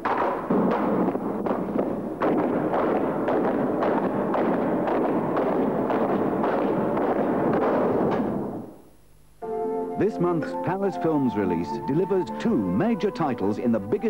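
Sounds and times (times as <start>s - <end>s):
explosions: 0.0s - 8.7s
gunfire: 0.0s - 8.8s.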